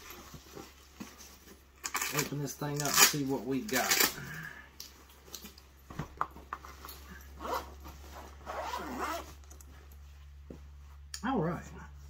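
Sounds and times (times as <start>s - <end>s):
zipper pulled open: 7.1s - 9.6s.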